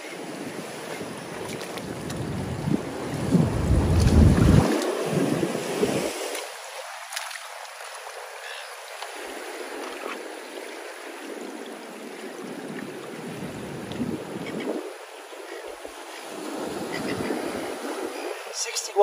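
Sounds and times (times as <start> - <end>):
wind buffeting microphone: 0.2 - 6.3, 12.8 - 19.0
seawater washing over rocks: 0.3 - 14.2.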